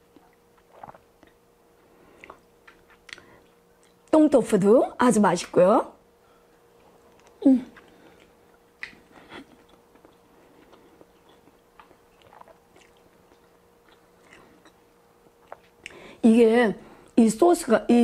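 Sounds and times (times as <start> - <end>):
person chewing food: 0.1 - 4.1, 6.4 - 16.0
wet mouth clicks: 0.2 - 1.4, 2.2 - 4.1, 7.1 - 14.8, 15.4 - 16.0
person humming: 7.4 - 7.8.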